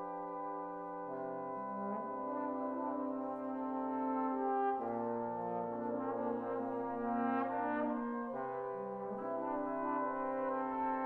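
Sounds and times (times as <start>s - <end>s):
trombone ensemble chords: 0.0s - 11.0s.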